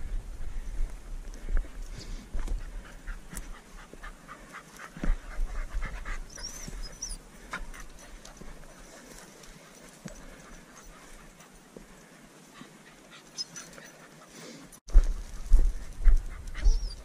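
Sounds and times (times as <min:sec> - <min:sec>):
dog panting: 0:01.3 - 0:14.8, 0:15.7 - 0:17.0
footsteps on stone: 0:14.9 - 0:16.4.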